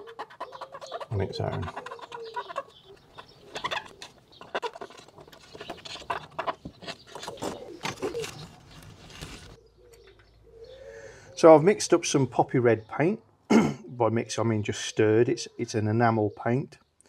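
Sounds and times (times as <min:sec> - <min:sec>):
pigeon cooing: 0:00.0 - 0:05.0, 0:09.5 - 0:11.4.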